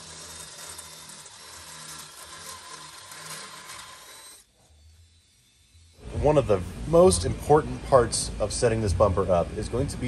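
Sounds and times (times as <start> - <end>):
power drill cutting steel: 0.0 - 6.6.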